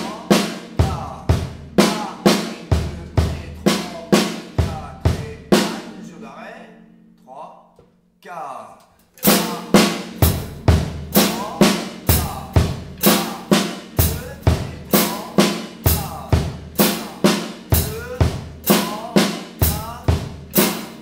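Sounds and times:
bass drum kicks: 0:00.8 - 0:01.8, 0:04.6 - 0:05.5, 0:10.2 - 0:13.0.

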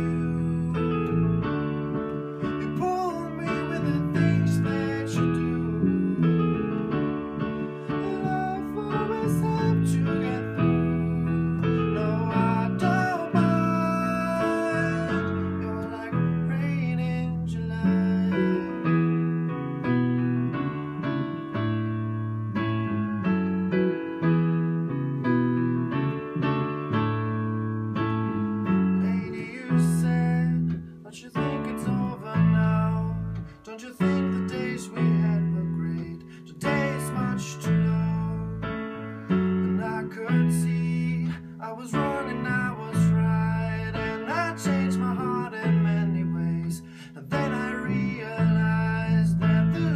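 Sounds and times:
man singing: 0:00.0 - 0:19.5, 0:28.6 - 0:49.9
digital piano chords: 0:00.0 - 0:49.9
electric bass guitar: 0:03.6 - 0:08.3, 0:17.2 - 0:31.0.

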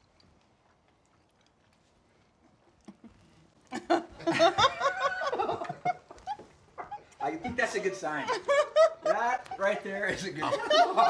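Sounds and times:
burst of laughter: 0:03.7 - 0:11.0.

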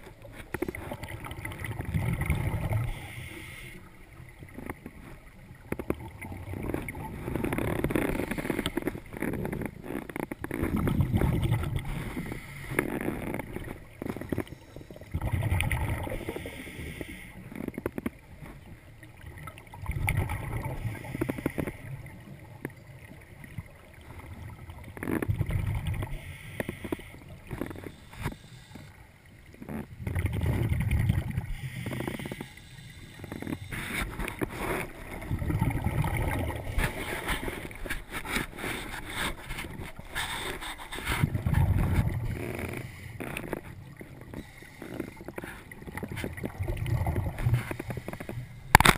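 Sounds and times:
bubbles rushing: 0:00.6 - 0:02.9, 0:10.6 - 0:12.0, 0:15.1 - 0:16.3, 0:19.2 - 0:20.9, 0:24.3 - 0:26.1, 0:30.0 - 0:31.5, 0:34.1 - 0:37.9, 0:41.2 - 0:42.7, 0:45.8 - 0:47.9
diver breathing underwater: 0:02.1 - 0:03.9, 0:06.7 - 0:17.5, 0:20.6 - 0:22.0, 0:26.0 - 0:29.0, 0:29.6 - 0:48.9.

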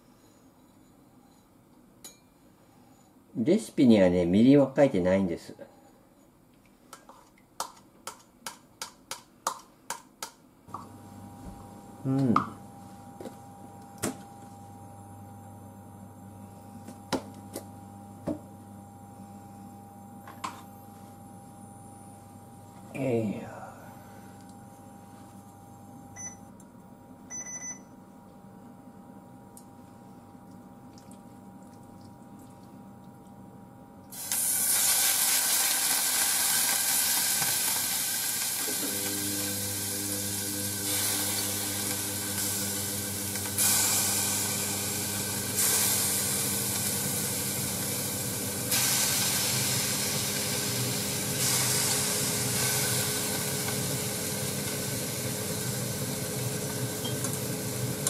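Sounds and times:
electrical hum: 0:10.5 - 0:58.0
meat sizzling in a saucepan: 0:34.2 - 0:58.0.

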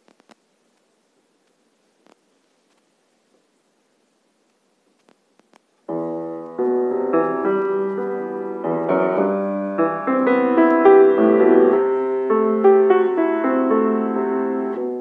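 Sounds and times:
faint clicks: 0:00.0 - 0:03.4, 0:04.4 - 0:08.1
grand piano playing: 0:05.9 - 0:15.0.

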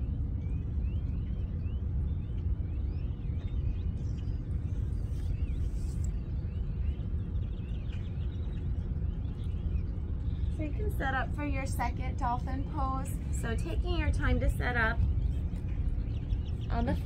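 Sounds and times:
birds chirping: 0:00.0 - 0:17.0
low rumble: 0:00.0 - 0:17.0.

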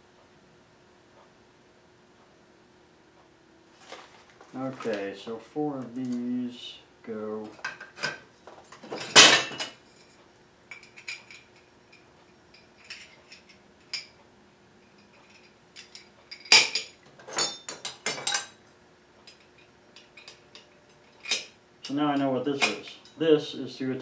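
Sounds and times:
metal parts clanking on workbench: 0:07.6 - 0:09.8, 0:15.1 - 0:18.6, 0:19.3 - 0:23.2.

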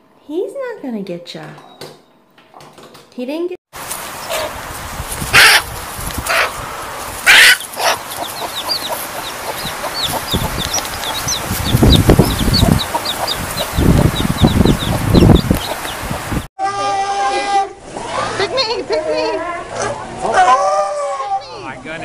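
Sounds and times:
chicks peeping: 0:03.9 - 0:16.5
hen squawking: 0:05.3 - 0:16.9.

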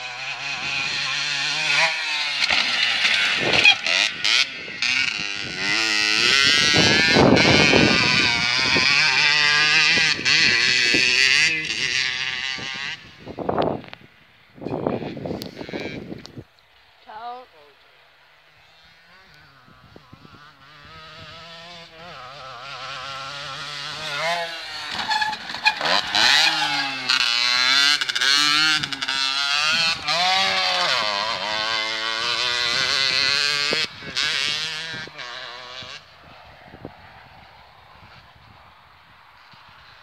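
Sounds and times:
dirt bike engine revving: 0:00.0 - 0:16.4, 0:18.4 - 0:40.0.

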